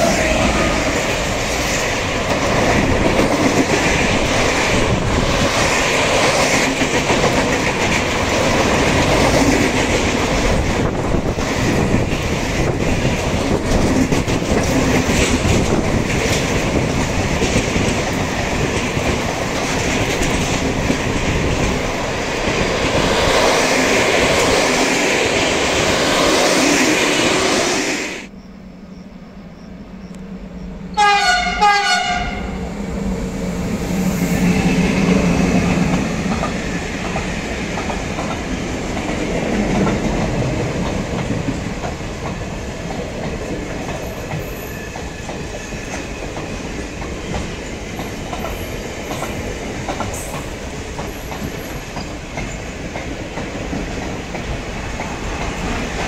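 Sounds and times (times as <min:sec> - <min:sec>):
freight train rumbling past: 0:00.0 - 0:56.0
train horn blast: 0:30.9 - 0:32.6.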